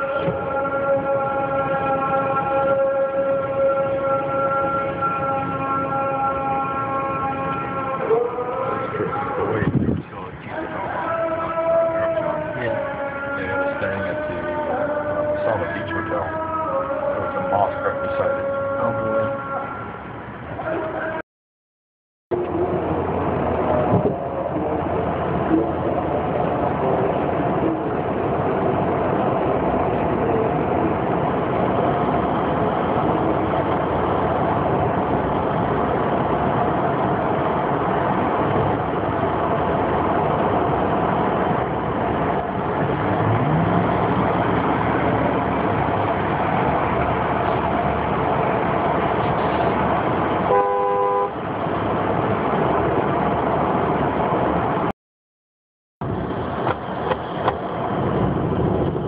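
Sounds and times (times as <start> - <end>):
city street traffic: 0.0 - 21.2, 22.3 - 54.9, 56.0 - 59.0
car horn honk: 50.4 - 51.4.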